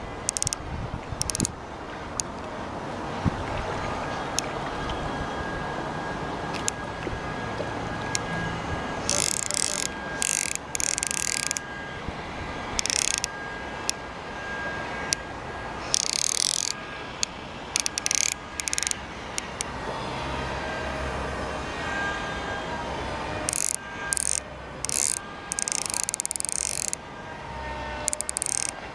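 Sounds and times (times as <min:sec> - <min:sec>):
fly reel ratchet clicking: 0:00.0 - 0:00.6, 0:01.2 - 0:01.6, 0:02.2 - 0:02.5, 0:09.0 - 0:11.7, 0:12.8 - 0:14.0, 0:15.8 - 0:19.7, 0:23.5 - 0:27.0, 0:28.0 - 0:28.8
shallow stream rushing: 0:00.0 - 0:21.8.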